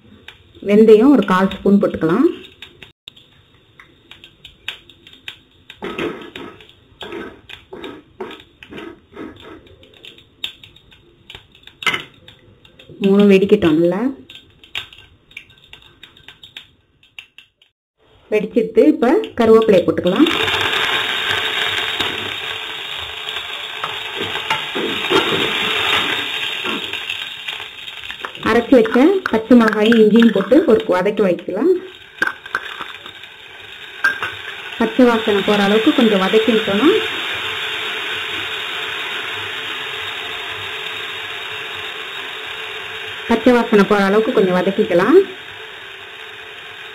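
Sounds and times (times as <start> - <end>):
seeds popping in hot oil: 0.1 - 17.8, 18.8 - 46.9
wooden spatula stirring seeds: 27.5 - 31.2.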